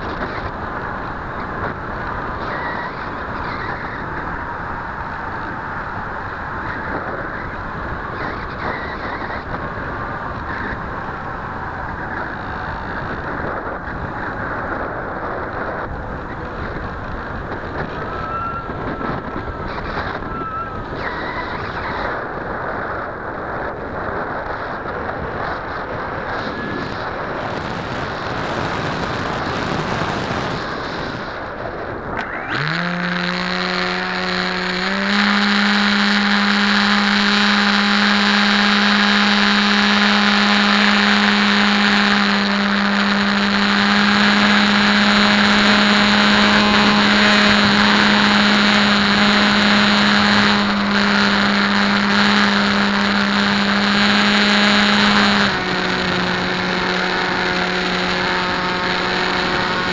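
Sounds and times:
electric motor and propeller whine: 0.0s - 59.9s
wind rushing over microphone: 0.0s - 59.9s.

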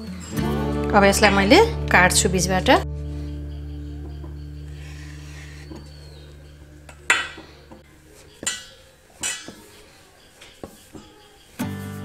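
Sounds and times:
low background music: 0.0s - 8.6s
utensils clacking on wooden board: 6.9s - 11.5s.

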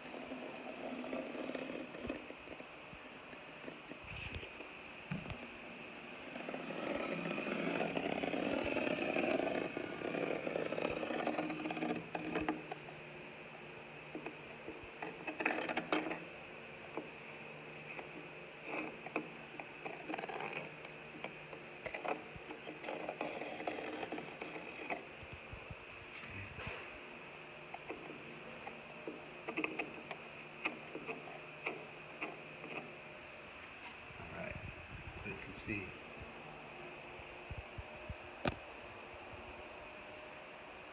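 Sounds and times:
metal point scraping textured wall: 0.0s - 25.6s, 27.6s - 33.2s.

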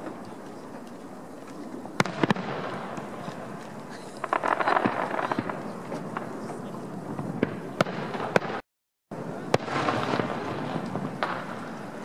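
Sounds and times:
firework crackle: 0.0s - 8.6s, 9.2s - 12.0s.

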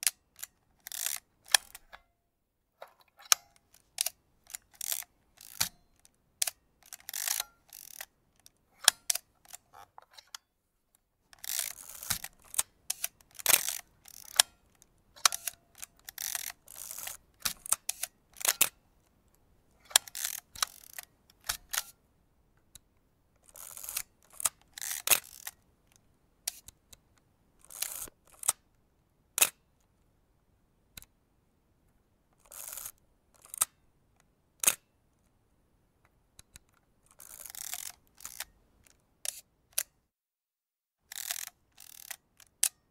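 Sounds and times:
camera shutter clicks: 11.4s - 14.5s.

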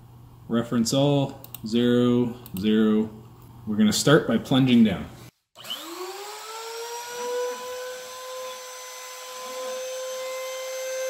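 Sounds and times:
router spindle whining: 5.6s - 11.0s.

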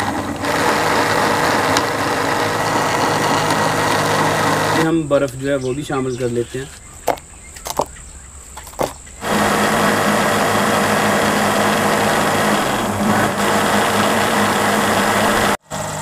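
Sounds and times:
blender motor running: 0.0s - 4.9s, 9.2s - 16.0s.

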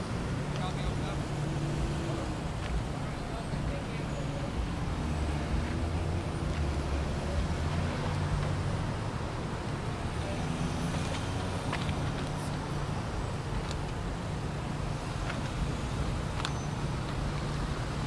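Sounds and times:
car engines idling: 0.0s - 18.0s
traffic noise: 0.0s - 18.0s.

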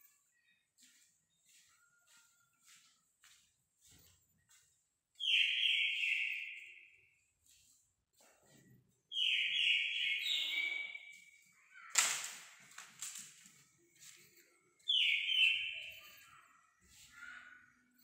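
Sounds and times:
bird singing: 4.5s - 7.6s, 9.1s - 12.2s, 13.8s - 18.0s.

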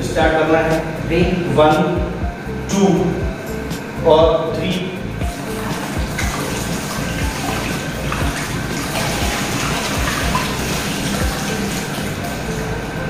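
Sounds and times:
water gushing from bottle: 5.4s - 12.6s
water splashing into plastic tub: 5.7s - 12.2s.

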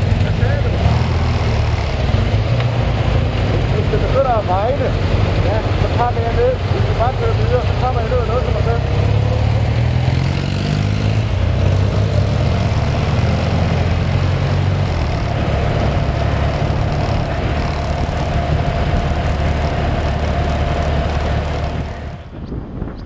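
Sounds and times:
motorcycle engine running: 0.0s - 22.5s
wind and road noise: 0.0s - 23.0s.

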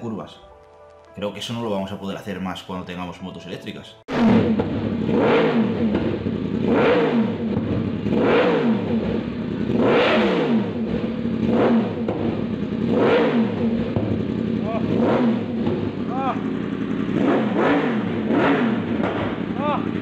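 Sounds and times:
motorcycle engine revving: 4.1s - 20.0s.

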